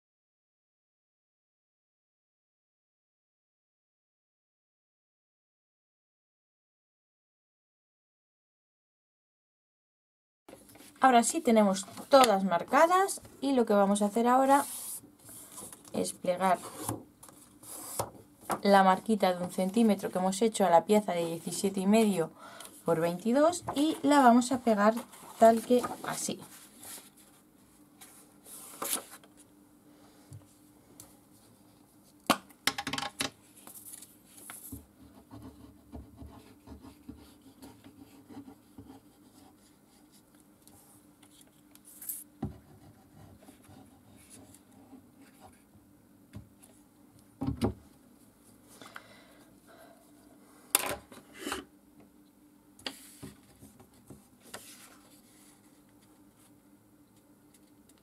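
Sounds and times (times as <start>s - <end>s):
paper rustling: 23.7s - 27.4s, 28.0s - 29.4s, 33.6s - 34.8s.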